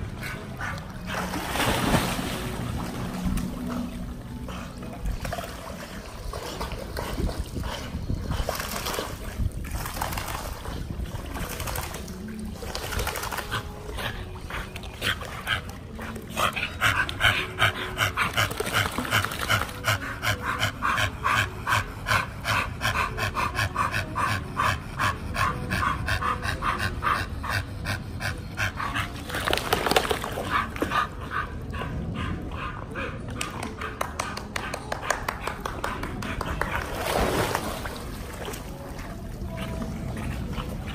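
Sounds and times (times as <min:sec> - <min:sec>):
dog panting rapidly: 0:13.2 - 0:37.1.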